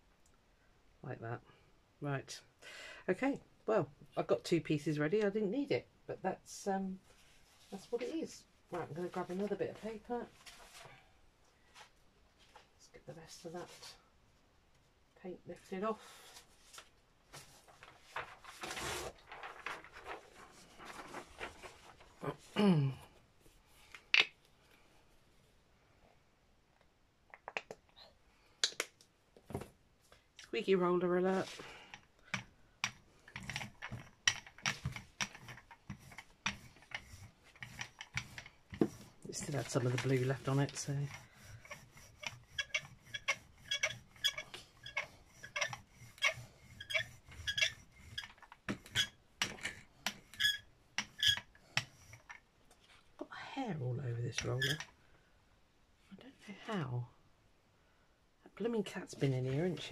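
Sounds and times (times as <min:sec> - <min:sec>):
ink roller squeaking: 0:33.4 - 0:52.4, 0:54.4 - 0:54.9.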